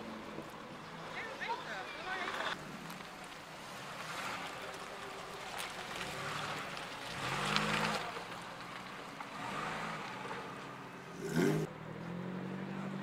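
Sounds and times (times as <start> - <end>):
car engine accelerating: 5.5 - 13.0.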